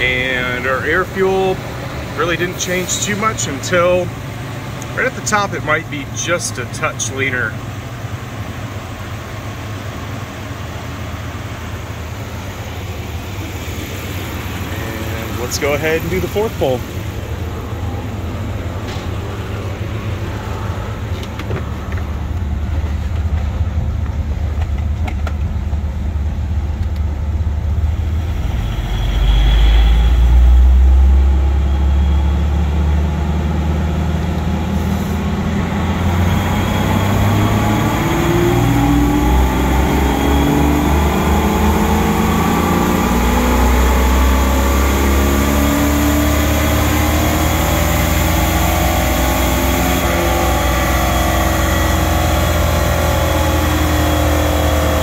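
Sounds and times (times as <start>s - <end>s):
car engine revving on dyno: 0.0s - 23.4s, 25.8s - 55.0s.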